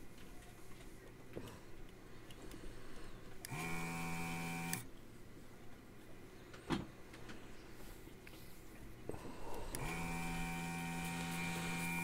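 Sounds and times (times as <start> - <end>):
vacuum pump humming: 3.4 - 4.9, 9.4 - 12.0.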